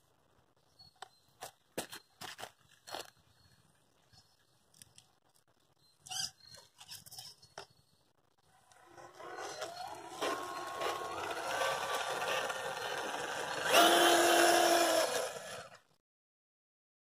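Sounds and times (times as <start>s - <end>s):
electric motor and gear whine: 8.6s - 15.9s.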